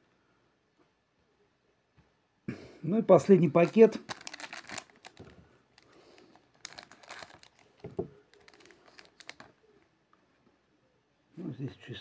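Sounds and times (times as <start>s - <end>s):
foil wrapper crinkling and tearing: 3.4s - 9.5s.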